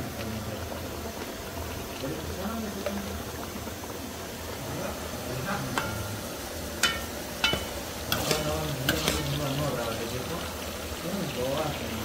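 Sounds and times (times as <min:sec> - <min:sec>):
faint frying sizzle: 0:00.0 - 0:12.0
metal spoon stirring in a pot: 0:05.0 - 0:11.0
spoon clinking against pot: 0:06.8 - 0:09.4.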